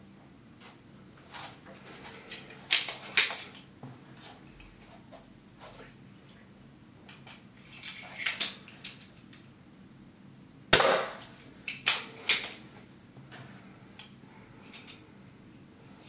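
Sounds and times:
airgun shot: 0:10.7 - 0:11.2.

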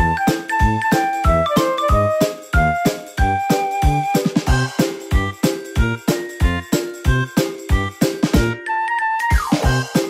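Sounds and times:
bouncy background music: 0:00.0 - 0:10.0.

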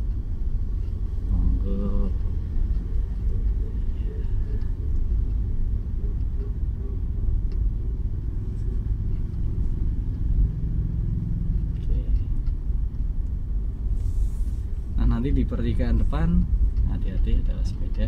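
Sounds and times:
car engine and tyre rumble: 0:00.0 - 0:18.0.

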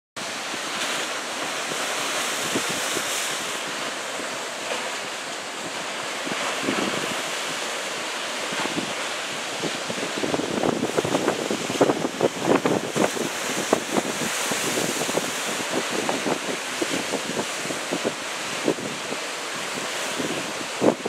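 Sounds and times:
surf breaking over rocks: 0:00.2 - 0:21.0
wind rumbling on microphone: 0:00.2 - 0:21.0.

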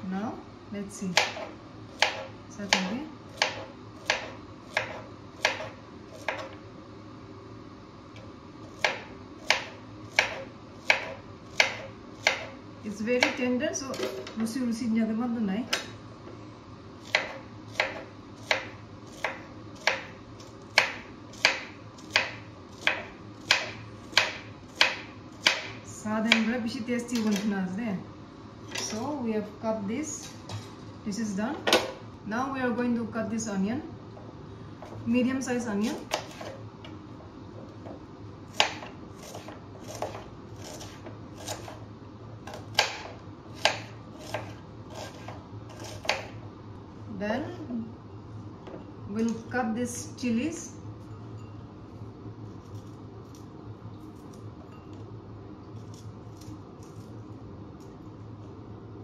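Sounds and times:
knife slicing onion on board: 0:01.1 - 0:06.6, 0:08.2 - 0:14.3, 0:17.0 - 0:27.5, 0:35.8 - 0:37.0, 0:37.7 - 0:46.4, 0:52.5 - 0:54.4, 0:55.8 - 0:57.2.

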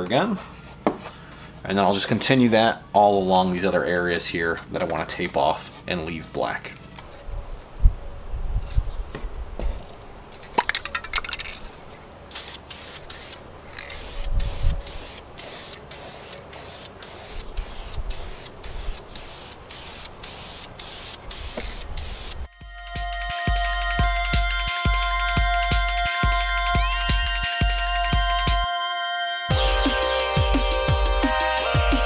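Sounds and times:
spray can rattle: 0:10.5 - 0:11.7, 0:12.3 - 0:22.4
spray paint can hissing: 0:12.3 - 0:22.5.

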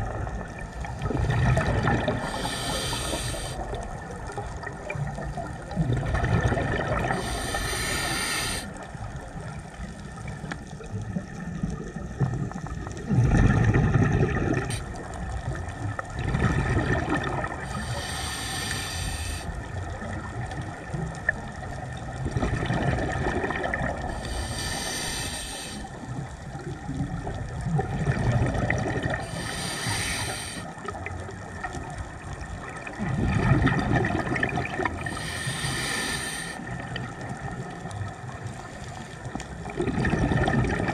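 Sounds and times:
exhaled air bubbling: 0:00.0 - 0:40.9
regulator hissing inhale: 0:02.2 - 0:03.8, 0:07.0 - 0:08.9, 0:14.6 - 0:15.0, 0:17.6 - 0:19.6, 0:24.0 - 0:26.1, 0:29.1 - 0:30.8, 0:35.0 - 0:36.8.

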